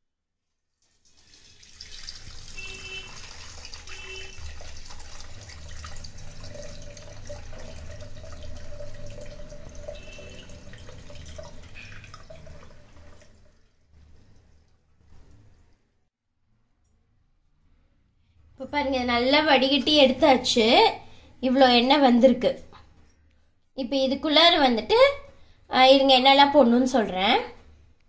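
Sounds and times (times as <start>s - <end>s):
oil pouring through a strainer: 0.8s - 15.6s.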